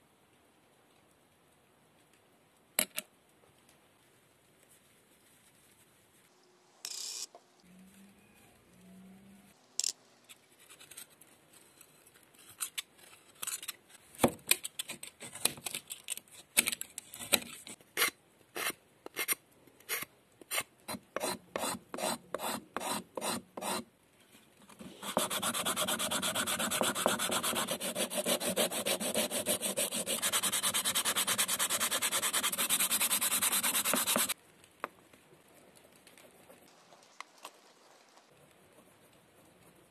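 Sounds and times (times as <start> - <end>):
hand scraping wooden dowel: 24.8 - 34.4
sandpaper rubbing: 24.8 - 34.4.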